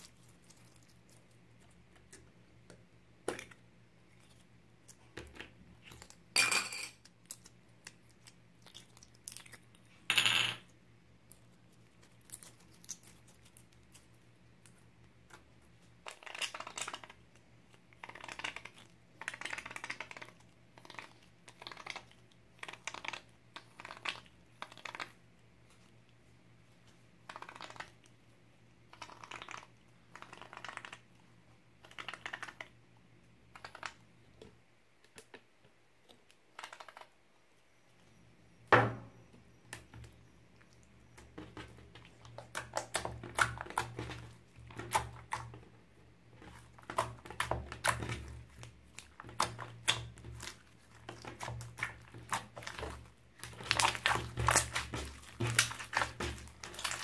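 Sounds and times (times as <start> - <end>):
slime kneaded by hand: 39.6 - 57.0.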